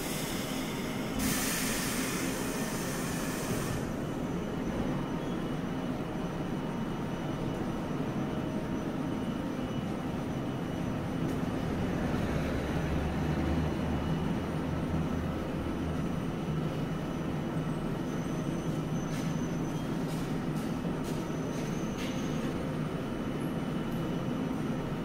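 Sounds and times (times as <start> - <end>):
streetcar equipment droning: 0.0 - 25.0.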